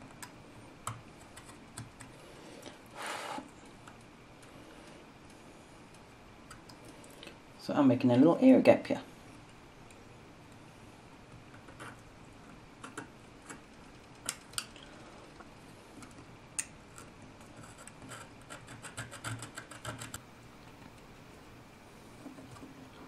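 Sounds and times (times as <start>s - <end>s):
craft knife scratching circuit board: 17.4s - 20.2s.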